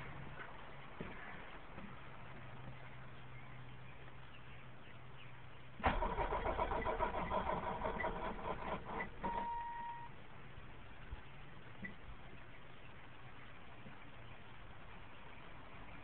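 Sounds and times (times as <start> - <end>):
starter motor cranking engine: 5.8 - 10.0
short steady whine: 5.8 - 10.2.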